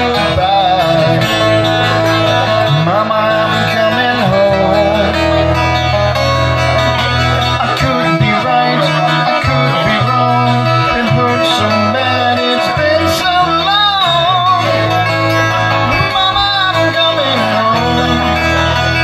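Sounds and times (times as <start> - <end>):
bass notes: 0.0 - 19.0
strummed acoustic guitars: 0.0 - 19.0.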